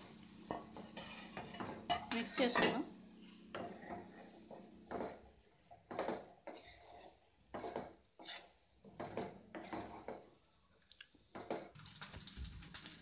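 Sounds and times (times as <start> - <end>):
wooden spatula scraping pan: 0.0 - 10.4.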